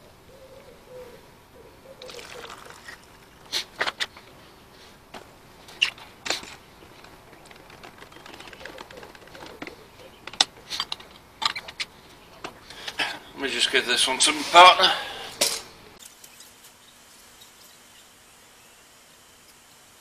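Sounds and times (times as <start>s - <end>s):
liquid trickling into a cup: 2.0s - 3.5s.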